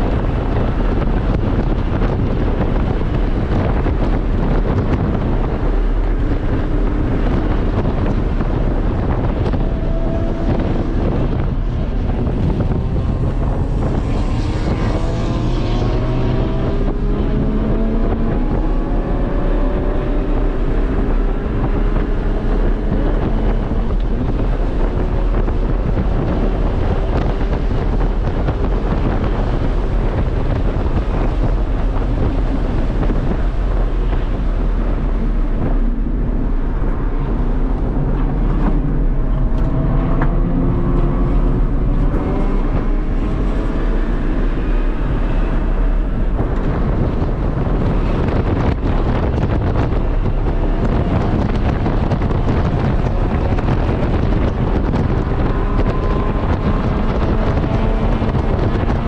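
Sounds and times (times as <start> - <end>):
car engine running hard: 0.0 - 59.0
wind and road noise: 0.0 - 59.0.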